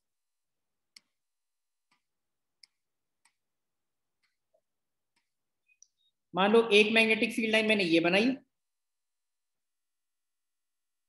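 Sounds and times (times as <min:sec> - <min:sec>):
faint computer mouse clicks: 0:00.9 - 0:01.2, 0:01.8 - 0:03.5.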